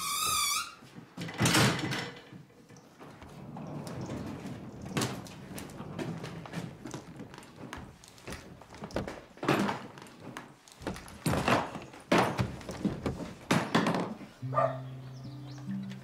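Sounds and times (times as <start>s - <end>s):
dull thumps and knocks: 6.0s - 14.3s
music notes: 14.4s - 16.0s.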